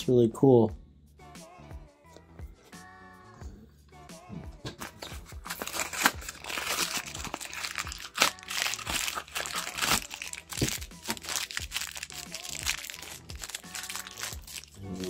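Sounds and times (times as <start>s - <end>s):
packaging crinkling: 5.3s - 15.0s.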